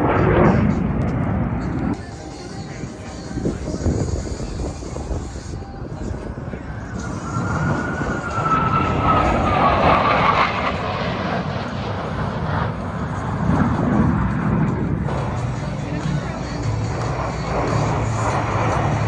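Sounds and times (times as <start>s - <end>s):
jet roaring past: 0.0s - 19.0s
thin jet whine: 0.0s - 19.0s.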